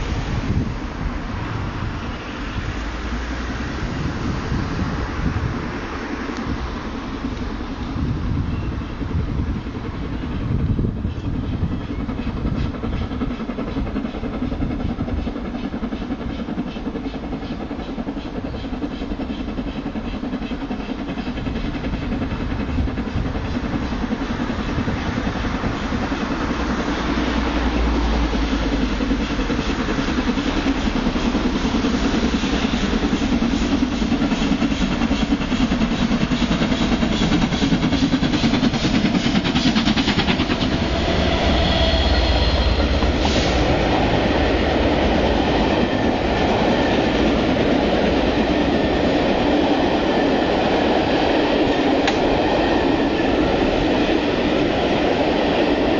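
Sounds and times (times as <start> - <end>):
train approaching: 0.0 - 55.9.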